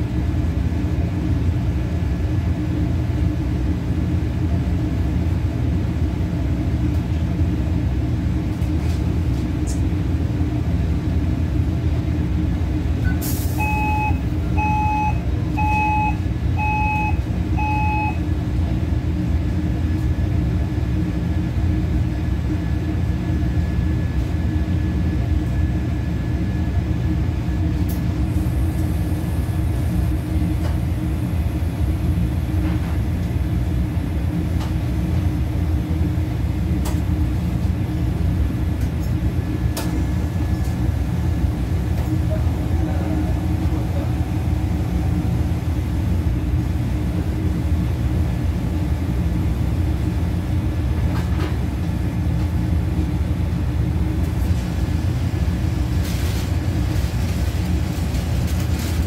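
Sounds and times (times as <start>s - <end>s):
short electronic beeps: 13.6s - 18.2s.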